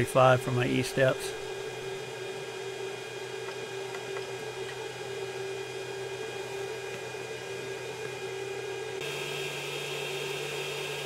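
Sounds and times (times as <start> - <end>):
three d printer humming: 0.0 - 11.0.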